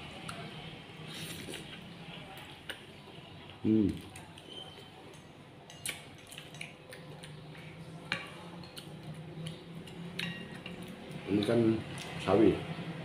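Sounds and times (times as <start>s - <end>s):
chopsticks clicking on plates: 8.1s - 12.2s.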